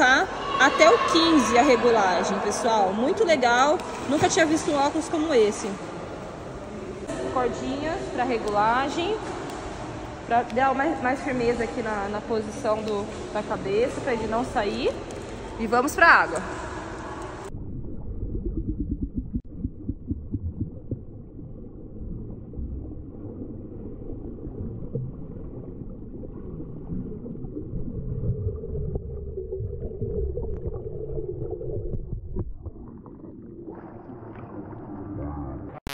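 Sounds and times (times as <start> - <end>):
underwater swimming thumps: 16.3 - 21.2.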